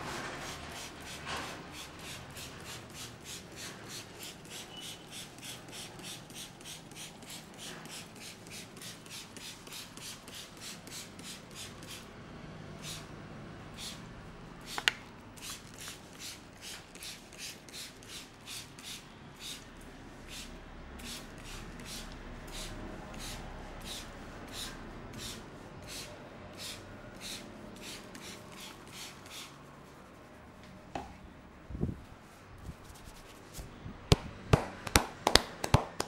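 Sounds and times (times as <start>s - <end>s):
fingers scratching through damp hair: 32.6s - 33.7s.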